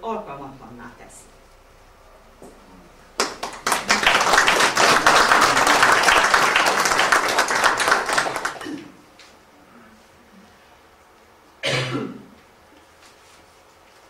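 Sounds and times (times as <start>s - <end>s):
audience applause: 3.2s - 8.8s.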